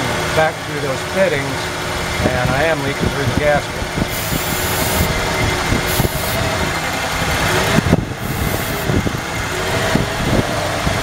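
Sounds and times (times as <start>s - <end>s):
engine idling unevenly: 0.0s - 11.0s
spray can hissing: 4.1s - 5.1s, 5.9s - 6.4s, 8.2s - 8.9s.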